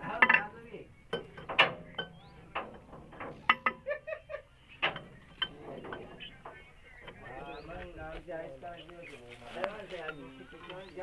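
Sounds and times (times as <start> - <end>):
metal tools clanking: 4.8 - 7.4.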